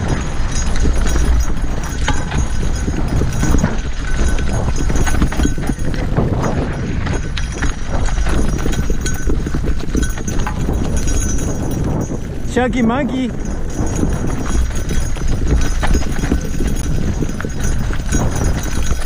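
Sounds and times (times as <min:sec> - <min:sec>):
tyres crunching over stones: 0:00.0 - 0:11.7
bike rattling and clattering: 0:00.0 - 0:19.0
wind buffeting microphone: 0:00.0 - 0:19.0.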